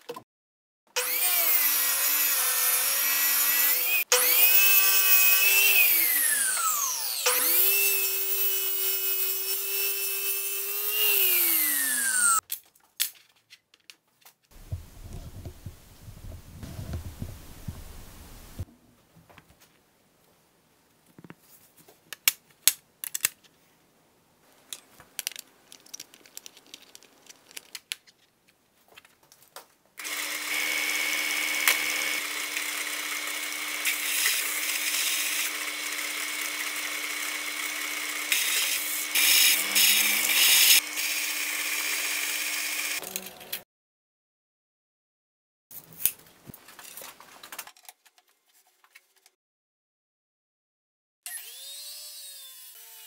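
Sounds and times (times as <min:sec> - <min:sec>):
sander grinding metal: 0:01.0 - 0:12.4, 0:30.0 - 0:43.6
belt sander running: 0:30.0 - 0:43.0.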